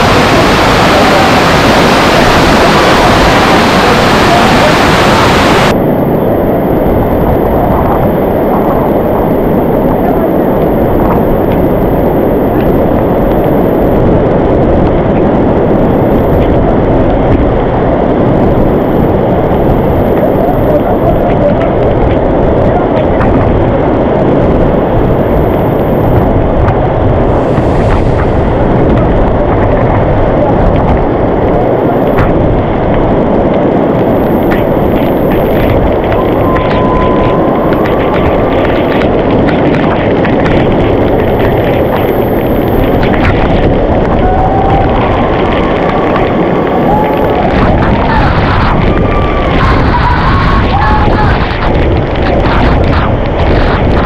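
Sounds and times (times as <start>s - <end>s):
waterfall rushing: 0.0s - 5.8s, 27.2s - 32.2s, 33.8s - 54.0s.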